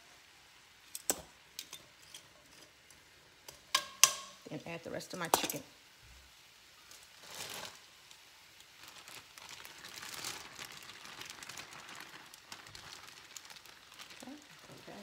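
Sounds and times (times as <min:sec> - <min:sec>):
plastic bag crinkling: 0:06.9 - 0:15.0.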